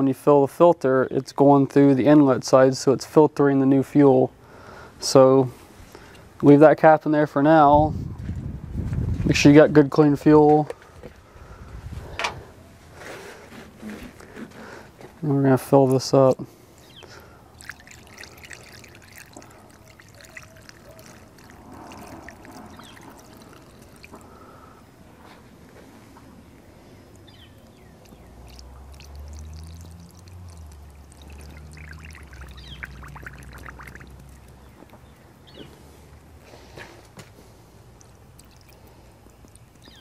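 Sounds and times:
fuel pouring from jug: 16.8s - 24.9s, 26.5s - 35.2s, 35.8s - 40.0s.

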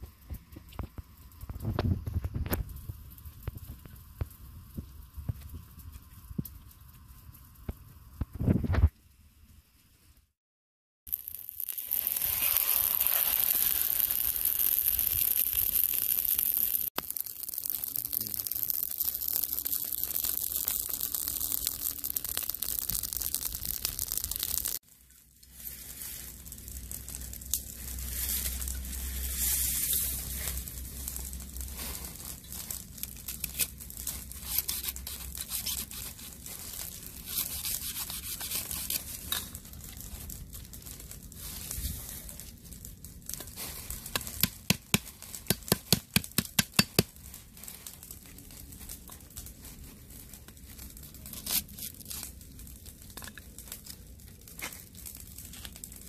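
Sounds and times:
fire crackling: 0.0s - 10.4s, 11.1s - 56.0s
fibrous stalks tearing and crunching: 11.1s - 24.8s, 25.5s - 56.0s.

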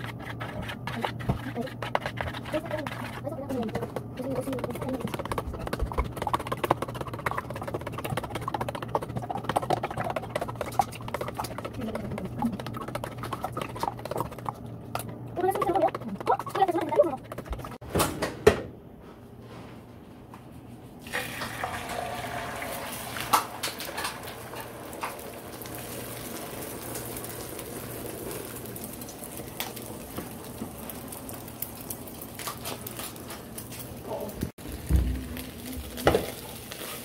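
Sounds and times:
clicks and pops of frying: 21.1s - 37.0s
eggs sizzling in frying pan: 21.1s - 37.0s.

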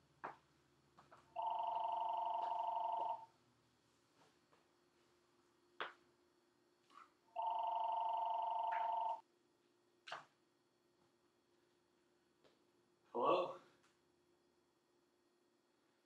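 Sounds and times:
telephone warbling ring: 1.4s - 3.3s, 7.4s - 9.2s.

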